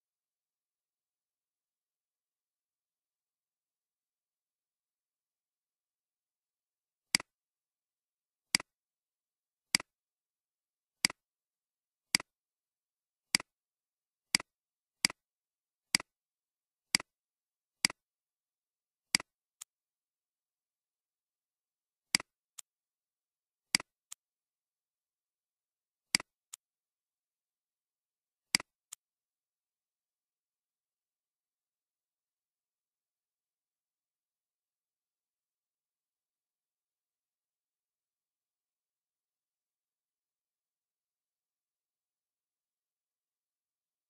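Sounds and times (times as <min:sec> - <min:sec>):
computer mouse clicks: 0:11.0 - 0:11.2, 0:14.4 - 0:15.2, 0:23.8 - 0:24.2, 0:26.2 - 0:26.6, 0:28.6 - 0:29.1.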